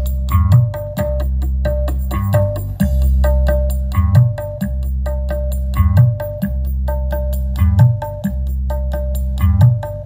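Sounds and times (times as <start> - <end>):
bass-heavy music with quick beat: 0.0 - 10.0.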